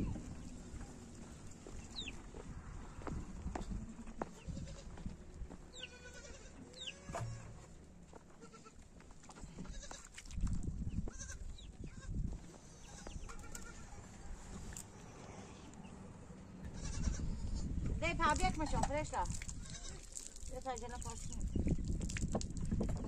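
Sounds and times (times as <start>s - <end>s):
goats bleating: 5.8s - 7.5s, 8.4s - 8.8s, 11.1s - 14.0s, 16.6s - 17.3s.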